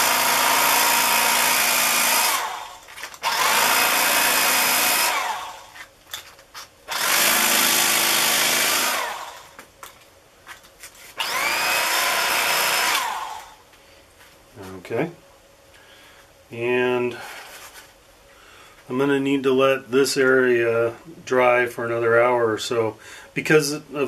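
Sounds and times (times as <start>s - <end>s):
electric carving knife whining: 0.0s - 5.8s, 6.9s - 9.6s, 11.2s - 13.6s.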